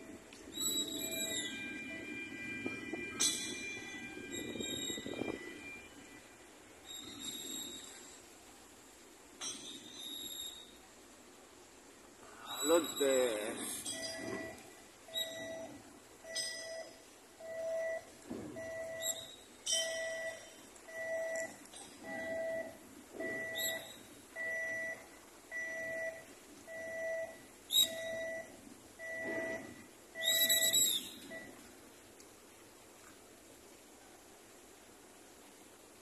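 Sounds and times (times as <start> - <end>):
electronic warning beeper: 0.0 - 6.2, 12.5 - 31.7
sharp metallic clinks: 19.6 - 20.5.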